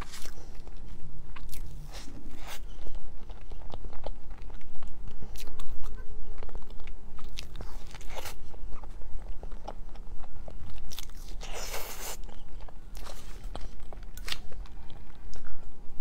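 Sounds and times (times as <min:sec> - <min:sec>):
close chewing with mouth clicks: 0:00.0 - 0:15.8.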